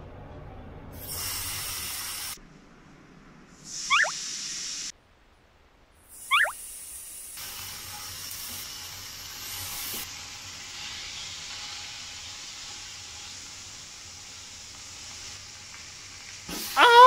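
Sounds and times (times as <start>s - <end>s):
meat sizzling in frying pan: 7.4s - 17.0s.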